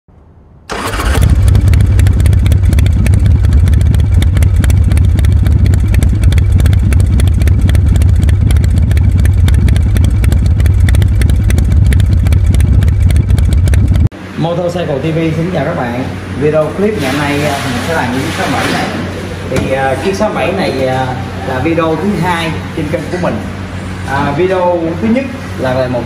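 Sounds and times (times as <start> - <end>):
motorcycle engine idling: 0.7 - 14.1.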